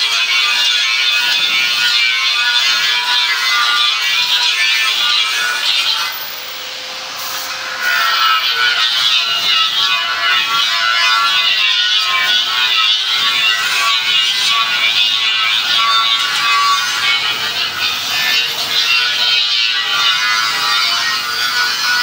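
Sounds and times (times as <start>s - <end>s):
paint spray gun hissing: 6.5s - 7.5s.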